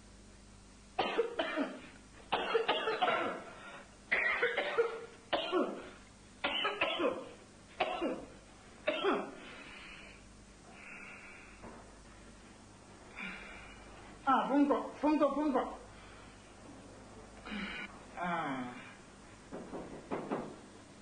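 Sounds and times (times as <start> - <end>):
man coughing hard: 1.0 - 3.5, 4.1 - 9.4.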